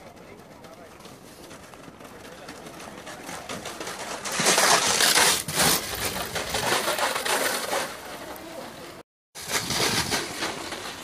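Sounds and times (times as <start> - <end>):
sled runners scraping on ice: 0.0 - 11.0.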